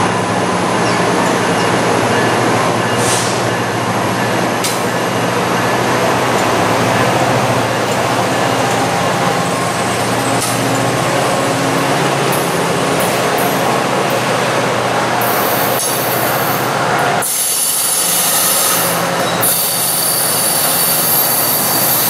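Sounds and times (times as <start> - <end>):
train wheels rumbling on rails: 0.0 - 22.0
sharp rail clicks: 4.6 - 5.0, 10.3 - 10.9.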